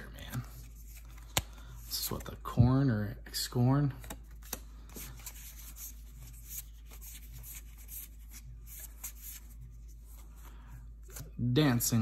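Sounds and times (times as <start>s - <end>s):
cards sliding against each other: 0.2s - 2.3s.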